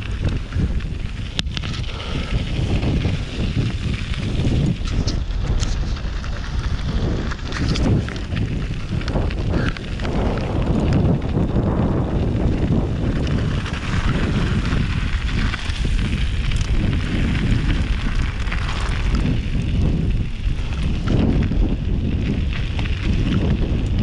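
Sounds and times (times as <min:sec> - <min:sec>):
bike knocking and rattling: 0:00.0 - 0:24.0
tyre noise: 0:00.0 - 0:24.0
wind buffeting the microphone: 0:00.0 - 0:24.0.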